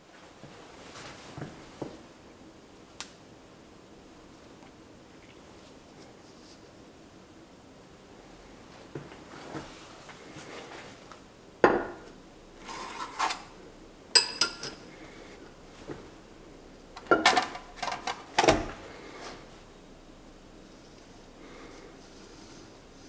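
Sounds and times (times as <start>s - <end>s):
rustling and scraping: 0.1s - 2.0s, 8.6s - 11.2s, 12.6s - 13.6s, 20.6s - 23.0s.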